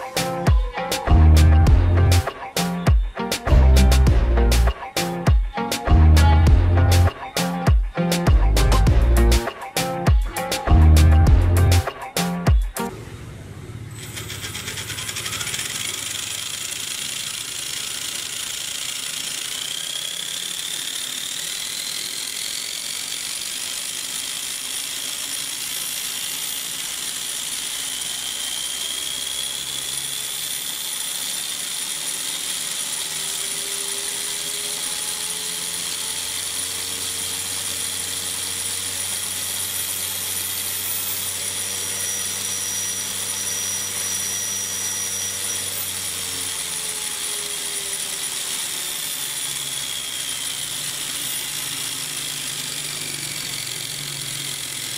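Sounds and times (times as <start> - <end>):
electric motor whine: 0.0 - 11.8, 12.4 - 54.9
gears whirring: 13.7 - 54.9.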